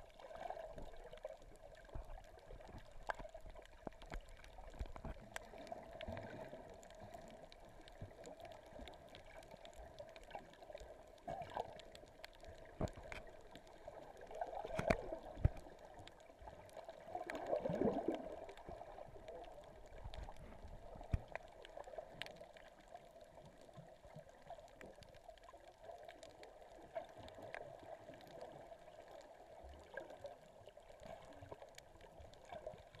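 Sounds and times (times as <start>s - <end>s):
muffled underwater sloshing: 0.0s - 33.0s
knocks underwater: 14.6s - 15.7s.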